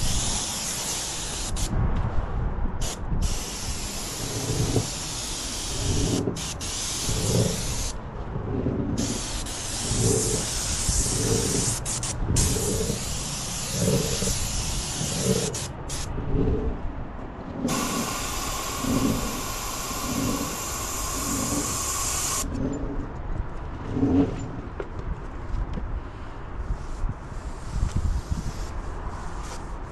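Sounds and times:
paint spray gun hissing: 0.0s - 1.7s, 2.8s - 8.0s, 9.0s - 16.1s, 17.7s - 22.5s.

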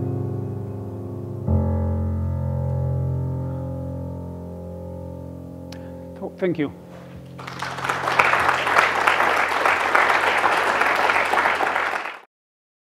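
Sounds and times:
audience applause: 7.3s - 12.3s.

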